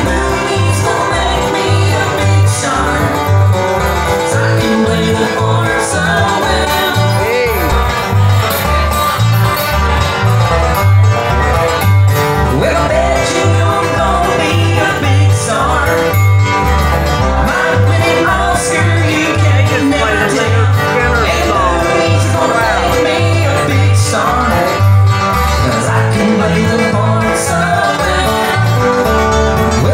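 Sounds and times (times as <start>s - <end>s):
live band playing: 0.0s - 29.9s
steady bass beat: 17.2s - 26.0s.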